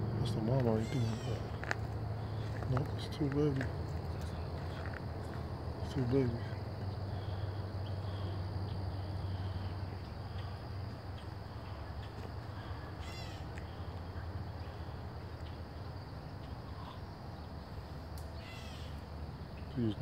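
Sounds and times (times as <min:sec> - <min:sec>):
faint insects: 0:00.0 - 0:20.0
steady hiss and low hum: 0:00.0 - 0:20.0
harsh animal call: 0:00.7 - 0:01.6, 0:12.5 - 0:13.9, 0:18.4 - 0:19.0.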